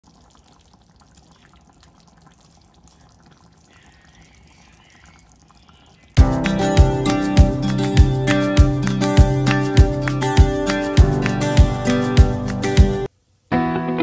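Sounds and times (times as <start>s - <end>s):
curry bubbling in a pan: 0.0s - 6.1s
loud guitar music: 6.2s - 14.0s.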